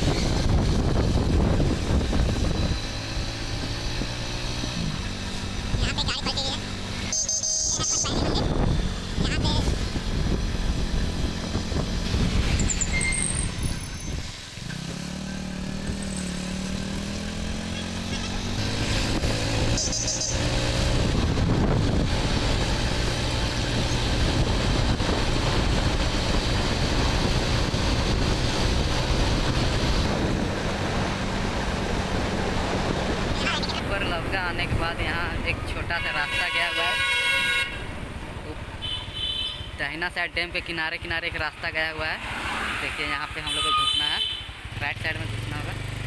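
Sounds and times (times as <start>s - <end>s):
wind rushing over microphone: 0.0s - 7.0s, 8.0s - 17.7s, 18.4s - 35.9s
motorcycle engine running: 0.0s - 35.4s, 44.2s - 46.0s.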